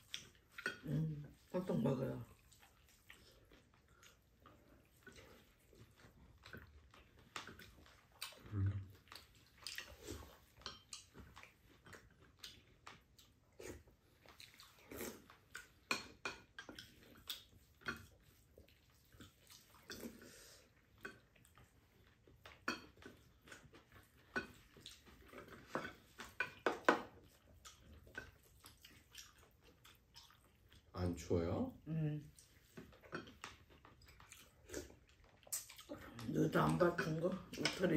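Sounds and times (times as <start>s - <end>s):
chewing: 0.0s - 37.9s.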